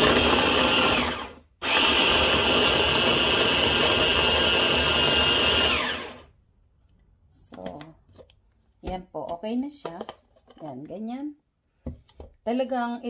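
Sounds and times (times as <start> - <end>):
stick blender chopping vegetables: 0.0 - 6.3.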